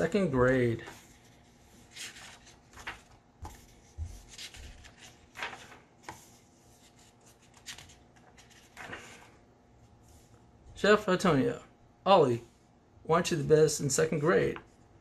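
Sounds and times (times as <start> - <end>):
book pages turning: 0.3 - 9.4.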